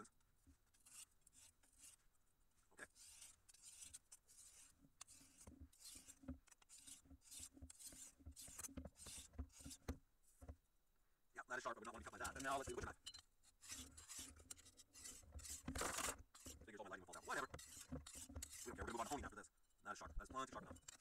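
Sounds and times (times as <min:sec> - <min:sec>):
knife scraping on sharpening stone: 0:00.8 - 0:02.0, 0:02.8 - 0:09.8, 0:12.0 - 0:19.2.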